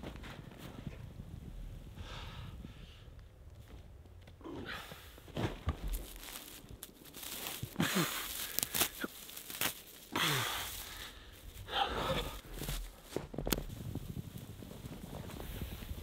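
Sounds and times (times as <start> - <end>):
dry hay rustling and crunching: 5.3 - 16.0.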